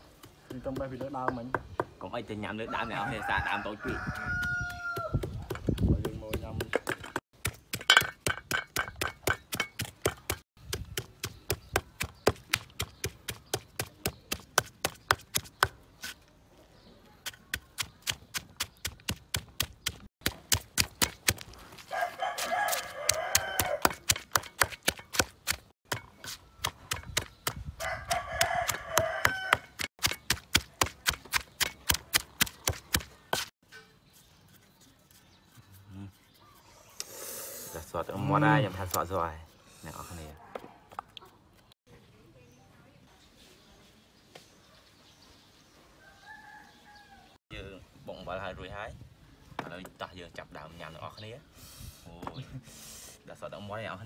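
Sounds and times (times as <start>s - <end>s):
pestle pounding in stone mortar: 0.2s - 2.1s, 4.1s - 15.8s, 17.2s - 21.6s, 22.4s - 33.5s
rooster crowing: 2.7s - 5.2s, 21.9s - 23.9s, 27.8s - 29.8s, 46.0s - 47.4s.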